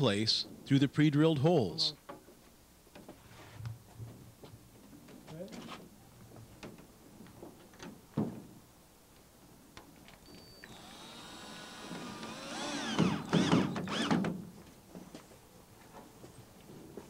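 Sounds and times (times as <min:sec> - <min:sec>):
drill motor whine: 0:10.4 - 0:14.2.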